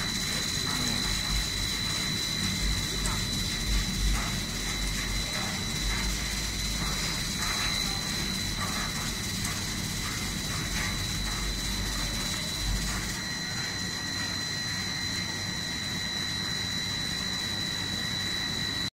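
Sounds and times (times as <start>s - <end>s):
low machinery rumble: 0.0s - 14.9s
production line machinery hum: 0.0s - 18.9s.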